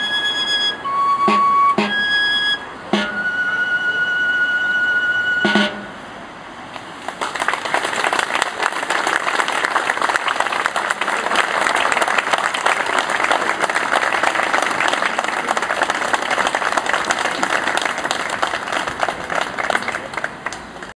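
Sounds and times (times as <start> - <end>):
crowd applauding: 7.0 - 20.9.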